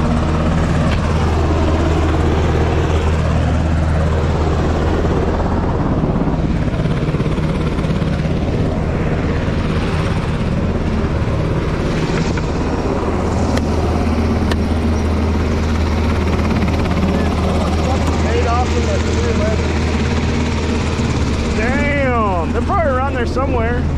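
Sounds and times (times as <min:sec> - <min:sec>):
aircraft engines droning: 0:00.0 - 0:23.9
deep constant hum: 0:00.0 - 0:23.9
helicopter rotor: 0:00.0 - 0:23.9.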